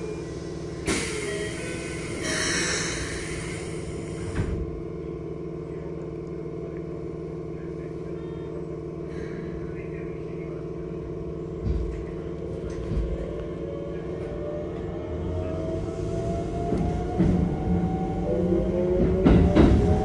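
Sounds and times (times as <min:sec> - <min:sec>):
train equipment hum: 0:00.0 - 0:20.0
train door closing thud: 0:04.2 - 0:04.7, 0:18.9 - 0:20.0.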